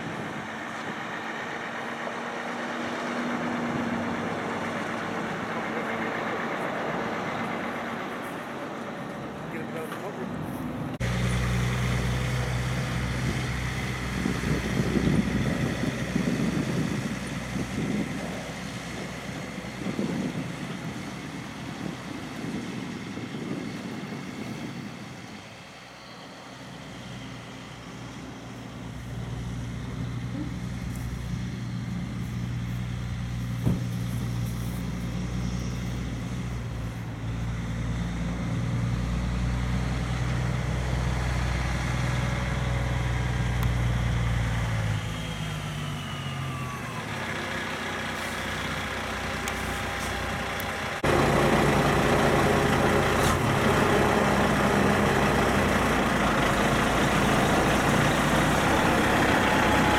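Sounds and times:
diesel truck engine humming: 0:00.0 - 0:59.9.

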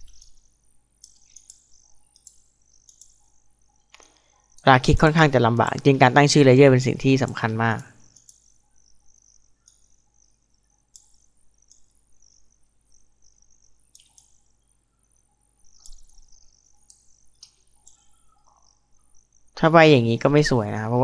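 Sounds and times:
computer mouse clicks: 0:00.0 - 0:04.6, 0:07.2 - 0:10.0, 0:10.7 - 0:12.0, 0:13.8 - 0:14.5, 0:15.6 - 0:19.2
insects chirping: 0:00.0 - 0:21.0.

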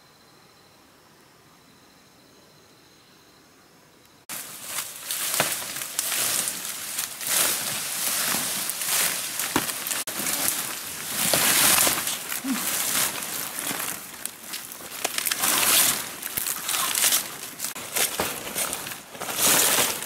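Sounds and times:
branches snapping: 0:04.3 - 0:20.0
leaves rustling and crackling: 0:04.3 - 0:20.0.

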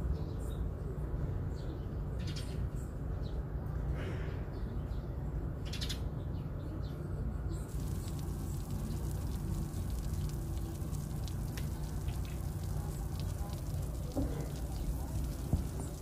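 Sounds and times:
egg sizzling in a pan: 0:07.7 - 0:16.0
steady low rumble: 0:07.7 - 0:16.0.

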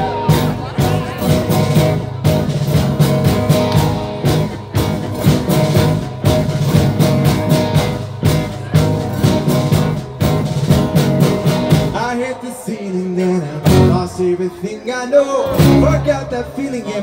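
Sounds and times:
electric bass: 0:00.0 - 0:12.0, 0:13.6 - 0:14.1, 0:15.5 - 0:16.5
electric guitar: 0:00.0 - 0:12.1.

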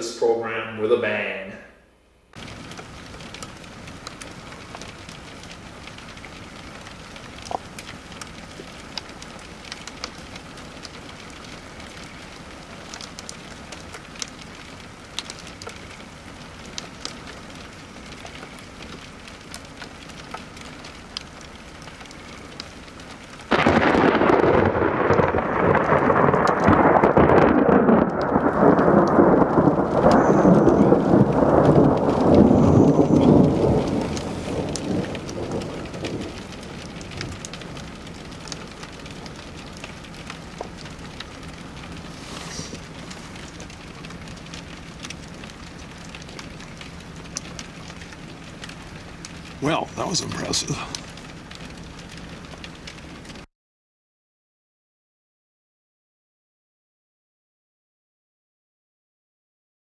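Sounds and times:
rain patter: 0:02.3 - 0:53.5
thunder clap and rumble: 0:23.5 - 0:42.2.

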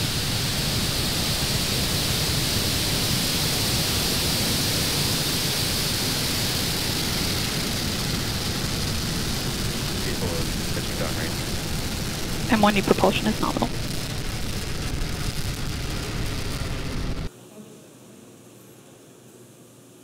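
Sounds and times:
rocket engines rumbling: 0:00.0 - 0:17.3.

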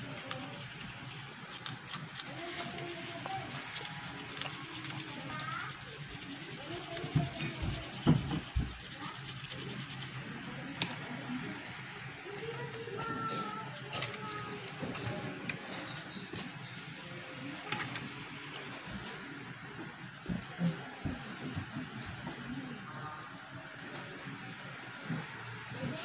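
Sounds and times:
scraping on circuit board: 0:00.0 - 0:10.1.

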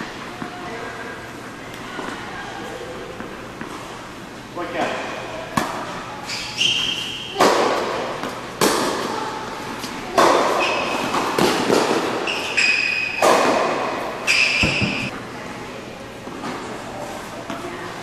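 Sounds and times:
racquets striking tennis ball: 0:04.8 - 0:06.0, 0:06.6 - 0:09.2, 0:09.8 - 0:15.1
tennis ball bouncing: 0:05.5 - 0:06.0, 0:06.6 - 0:09.2, 0:09.8 - 0:15.1
shoes squeaking on court: 0:05.8 - 0:07.6, 0:09.8 - 0:13.3, 0:14.0 - 0:15.1.

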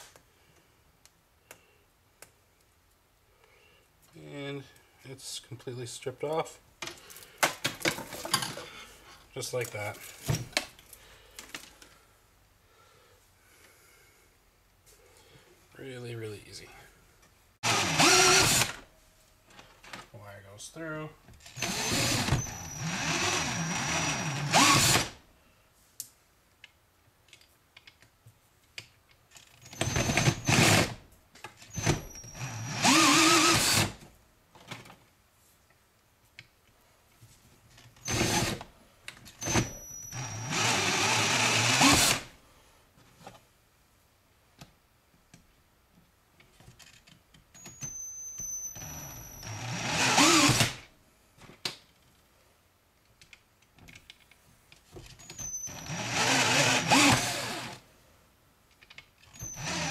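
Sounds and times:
cordless drill whining: 0:17.6 - 0:18.8, 0:21.4 - 0:25.2, 0:29.7 - 0:31.0, 0:31.7 - 0:34.0, 0:38.0 - 0:38.7, 0:39.4 - 0:42.3, 0:47.6 - 0:50.9, 0:55.2 - 0:57.8, 0:59.3 - 0:59.9.

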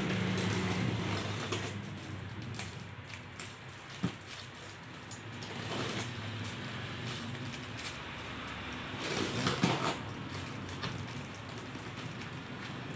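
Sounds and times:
plastic wrapping crinkling: 0:00.0 - 0:12.9.

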